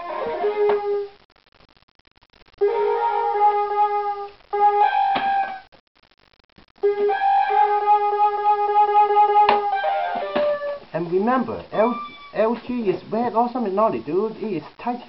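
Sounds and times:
keyboard flute-like notes: 0:02.6 - 0:05.6, 0:06.8 - 0:10.8, 0:11.7 - 0:12.4.

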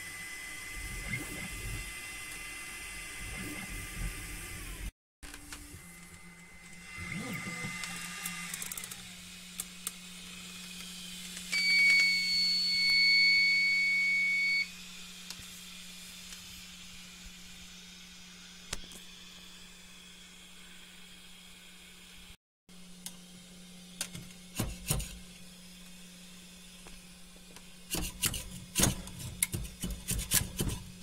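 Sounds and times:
stepper motors whining: 0:00.0 - 0:17.0
long electronic beep: 0:11.6 - 0:14.7.

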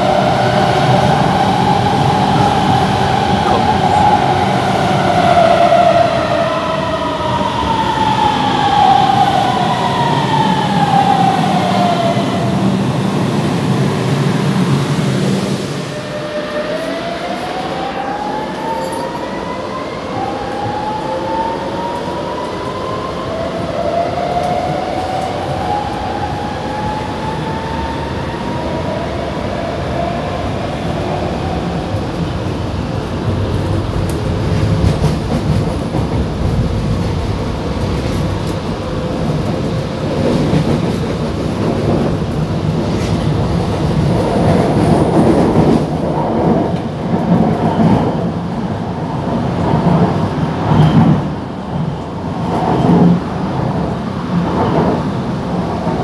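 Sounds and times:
wheels rumbling on rail: 0:00.0 - 0:56.0.

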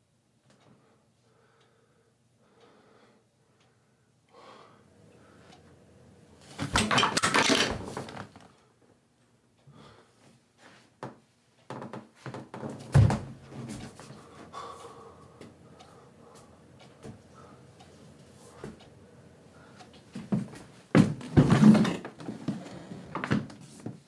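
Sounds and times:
objects clattering and thumping: 0:06.4 - 0:08.5, 0:11.7 - 0:14.1, 0:20.1 - 0:24.0.

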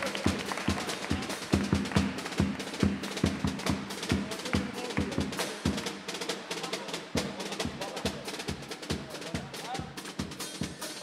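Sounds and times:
bass and snare drum rhythm: 0:00.0 - 0:11.0.

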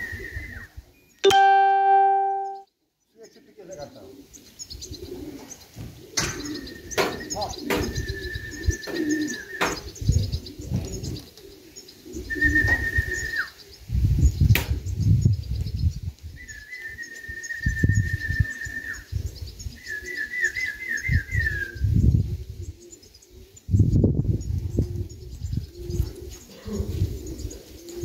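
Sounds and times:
person whistling: 0:01.2 - 0:02.6
pigeons cooing: 0:03.9 - 0:13.9, 0:16.4 - 0:28.0.

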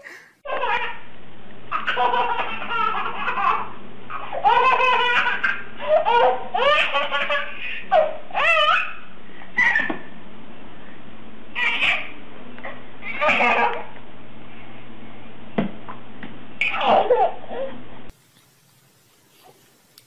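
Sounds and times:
steady background hum: 0:00.0 - 0:20.0
baby laughing and squealing: 0:00.5 - 0:01.0, 0:01.7 - 0:10.1, 0:11.6 - 0:12.2, 0:13.0 - 0:13.9, 0:16.6 - 0:17.8.

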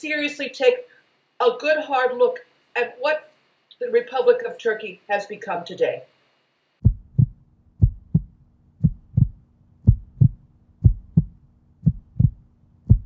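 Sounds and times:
faint low hum: 0:00.0 - 0:13.0
heartbeat thumps: 0:06.8 - 0:13.0.

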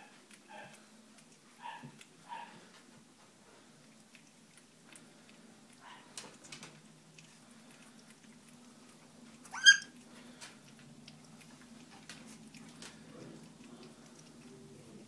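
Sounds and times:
puppies eating: 0:00.0 - 0:15.0
puppy yelp: 0:09.5 - 0:09.9.

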